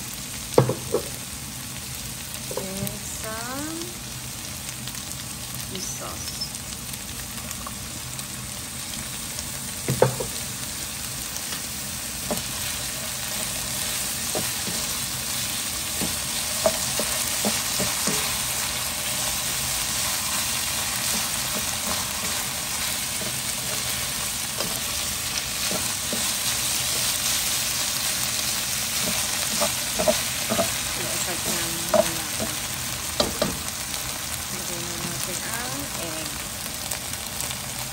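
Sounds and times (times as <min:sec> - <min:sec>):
meat and vegetables sizzling in a wok: 0:00.0 - 0:37.9
spatula stirring and scraping: 0:11.5 - 0:33.5.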